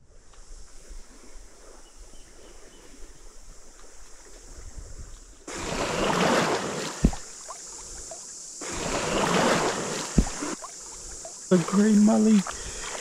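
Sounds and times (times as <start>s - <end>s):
surf washing over sand: 5.5s - 13.0s
low wave thump: 7.0s - 7.4s, 10.1s - 10.6s.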